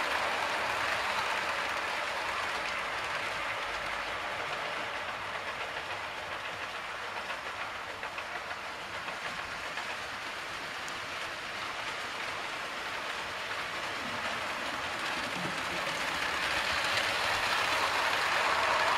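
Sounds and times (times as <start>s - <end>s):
model train wheels rattling: 0.0s - 18.9s.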